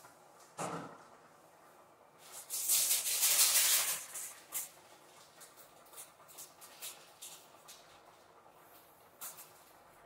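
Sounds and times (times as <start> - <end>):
powder rattling in shaken sachet: 2.2 - 7.9.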